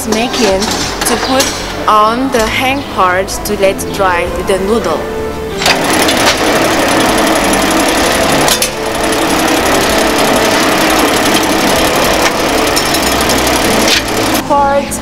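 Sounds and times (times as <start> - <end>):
noodle machine mechanical rattle: 5.6 - 14.4.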